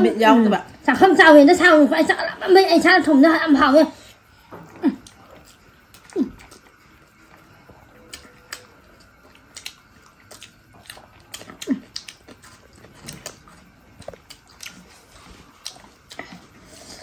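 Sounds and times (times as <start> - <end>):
wet chewing and lip smacks: 4.4 - 16.8.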